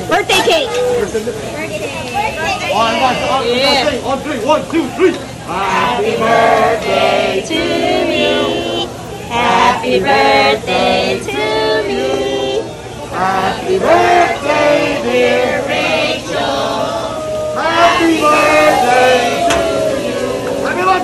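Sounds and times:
group of people singing: 0:05.5 - 0:21.0.

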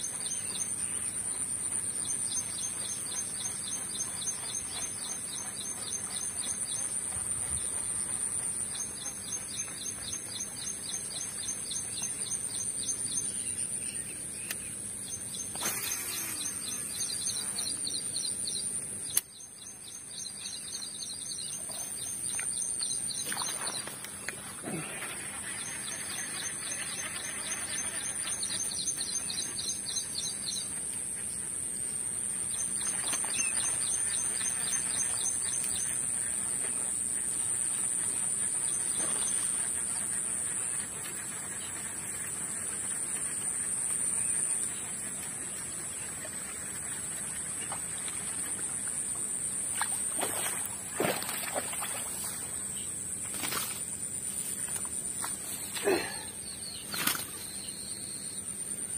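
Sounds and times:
birds chirping: 0:00.0 - 0:30.8, 0:32.5 - 0:58.9
sharp click: 0:19.1 - 0:19.3.

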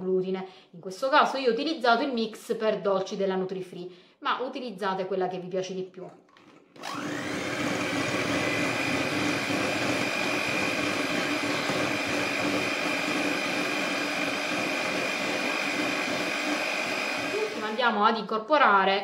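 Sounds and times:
electric hand mixer whining: 0:06.4 - 0:18.0.

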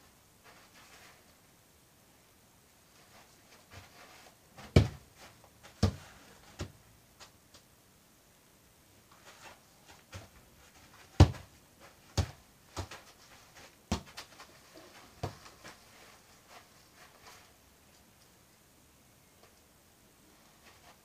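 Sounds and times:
football kicked thuds: 0:04.6 - 0:05.0, 0:05.7 - 0:06.0, 0:11.2 - 0:11.5, 0:12.1 - 0:13.0, 0:13.9 - 0:14.2.

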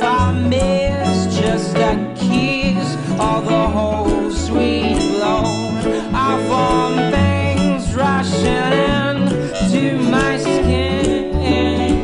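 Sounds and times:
repeating bass line: 0:00.0 - 0:12.0
song with singing voice: 0:00.0 - 0:12.0.

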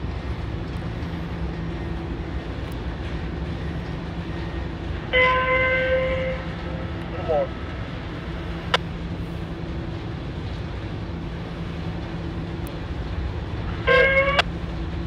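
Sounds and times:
diesel locomotive engine rumbling: 0:00.0 - 0:15.0
loud high-pitched tone: 0:05.1 - 0:06.6, 0:13.8 - 0:14.5.

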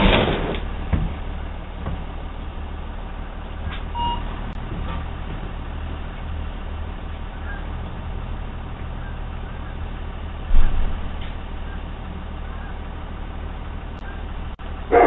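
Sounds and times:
truck engine idling: 0:00.0 - 0:15.0
brief electronic beep: 0:04.0 - 0:04.3.

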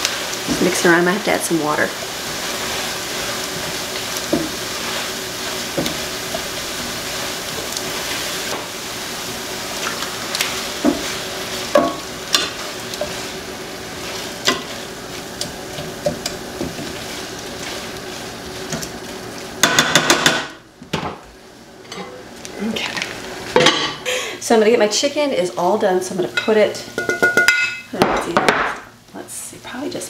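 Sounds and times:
chicken sizzling in skillet: 0:00.0 - 0:20.7
tongs clicking and scraping pan: 0:11.7 - 0:13.2, 0:14.2 - 0:18.0.

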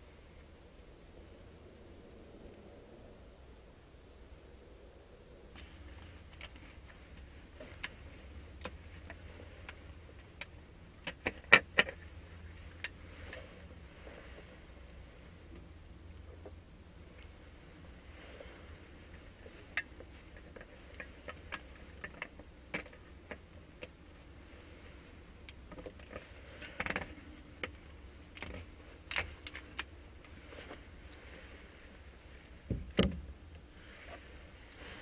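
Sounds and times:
heavy thump: 0:32.7 - 0:33.2.

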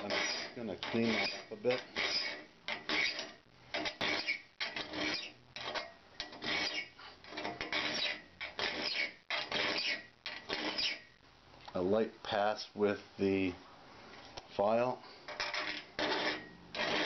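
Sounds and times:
steel file rasping on saw tooth: 0:00.0 - 0:11.1, 0:15.3 - 0:17.0.

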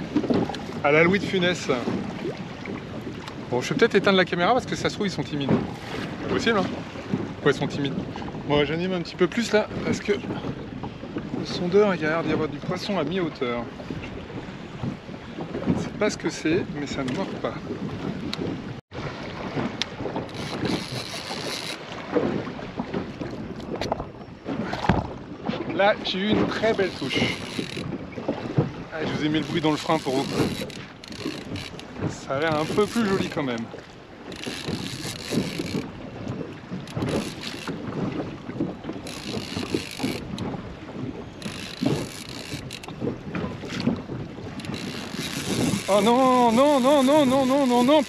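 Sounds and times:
water slapping inflatable boat: 0:00.0 - 0:48.0
wind on microphone: 0:00.0 - 0:48.0
fishing reel drag buzzing: 0:20.3 - 0:21.8, 0:26.7 - 0:27.8, 0:29.4 - 0:33.3, 0:34.3 - 0:35.9, 0:36.8 - 0:37.8, 0:39.0 - 0:40.2, 0:41.4 - 0:42.9, 0:44.6 - 0:46.1.

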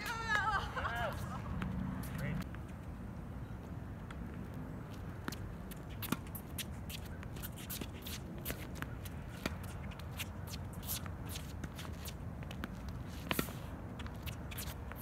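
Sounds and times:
footsteps scuffing on court: 0:04.0 - 0:15.0
racket hitting tennis ball: 0:05.2 - 0:15.0.

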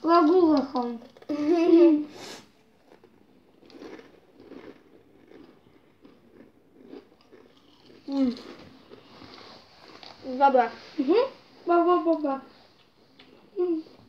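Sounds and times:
crisps crunching: 0:02.8 - 0:10.3.

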